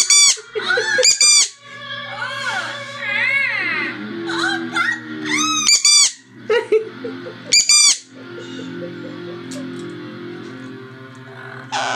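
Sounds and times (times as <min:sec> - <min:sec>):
parrot squawking: 0:00.0 - 0:06.4, 0:07.5 - 0:09.6, 0:11.7 - 0:11.9
background music: 0:00.0 - 0:11.9.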